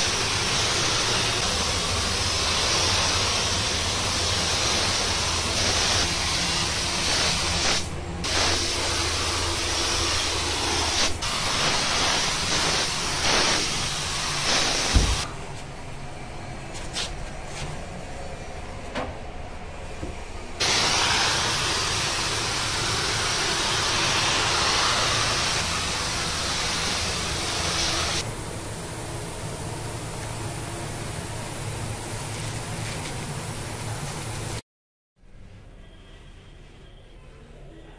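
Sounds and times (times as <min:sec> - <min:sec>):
spray gun hissing: 0:00.0 - 0:15.3, 0:20.6 - 0:28.2.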